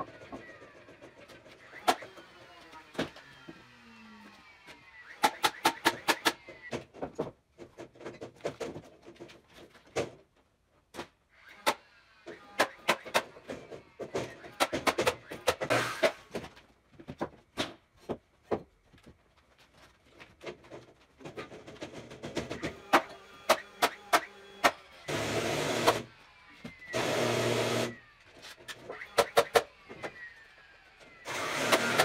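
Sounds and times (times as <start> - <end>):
nail gun shots into wood: 5.1 - 6.8, 12.5 - 13.6, 14.2 - 16.4, 22.4 - 24.8, 28.9 - 29.8.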